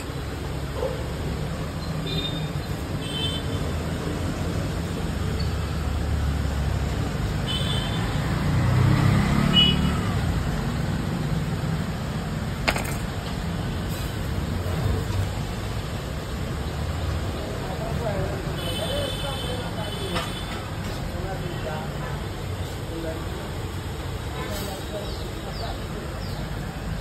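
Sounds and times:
street traffic rumble: 0.0s - 27.0s
vehicle passing: 8.2s - 10.1s.

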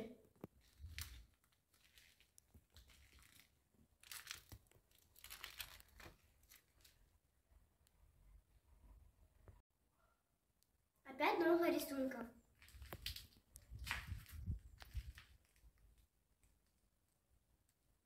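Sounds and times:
footsteps crunching on debris: 12.6s - 15.5s.

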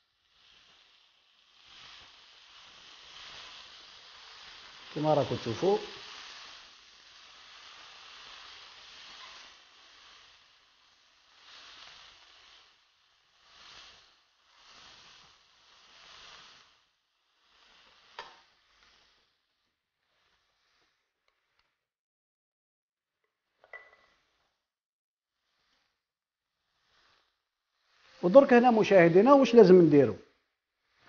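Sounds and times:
meat sizzling in frying pan: 0.0s - 19.4s.

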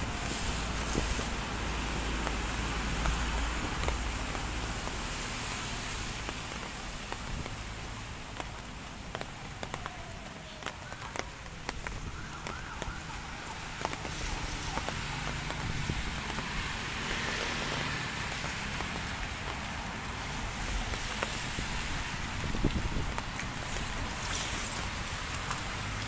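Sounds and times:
low wind rumble on microphone: 14.1s - 16.9s, 20.0s - 25.2s.

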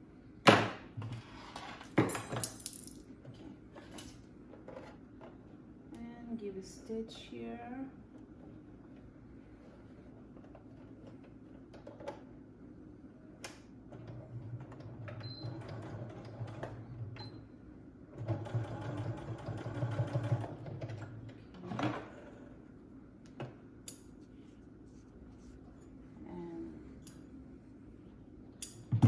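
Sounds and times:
sewing machine stitching: 13.9s - 17.2s, 18.2s - 22.4s.

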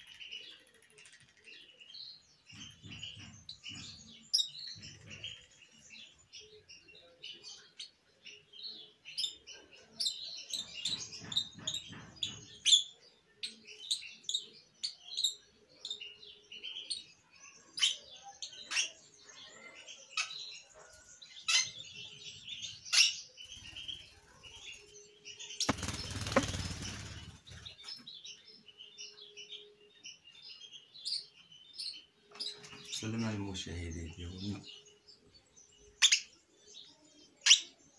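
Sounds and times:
parakeet chicks chirping: 0.0s - 37.9s
wing flapping: 25.6s - 27.7s.

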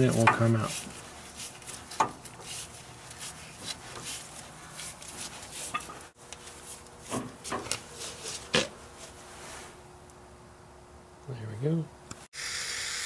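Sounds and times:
wrench scraping and clicking: 0.0s - 6.0s.

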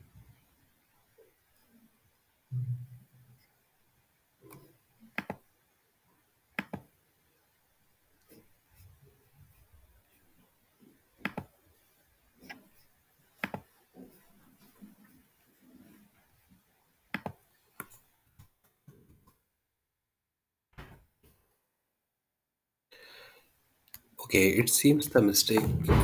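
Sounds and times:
computer mouse clicks: 4.5s - 5.4s, 6.6s - 6.9s, 11.2s - 11.5s, 13.4s - 13.7s, 17.1s - 18.0s.

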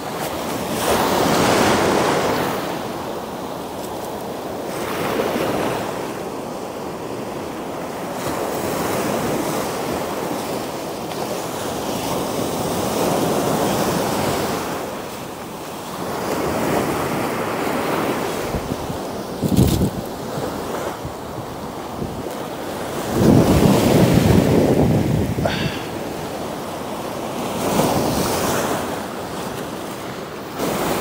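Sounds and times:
waves breaking on shore: 0.0s - 31.0s
wind buffeting microphone: 18.2s - 26.5s.

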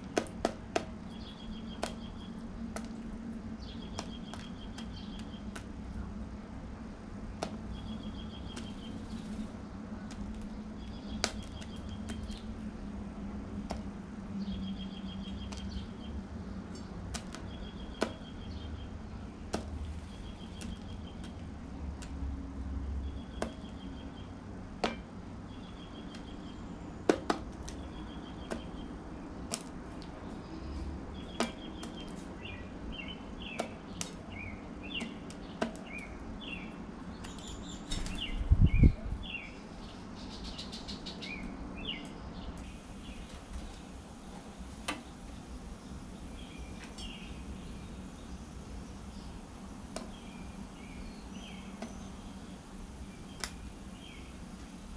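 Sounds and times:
small birds chirping: 0.0s - 54.9s
bird pecking seeds: 19.4s - 24.0s.

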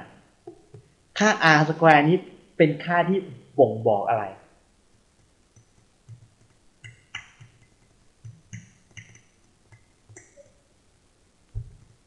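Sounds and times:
faint clicks and ticks: 5.1s - 10.6s.

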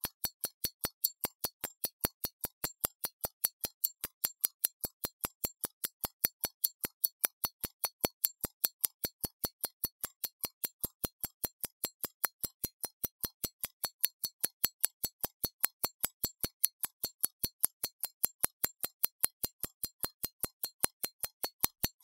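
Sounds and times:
pocket watch ticking: 0.0s - 22.0s.

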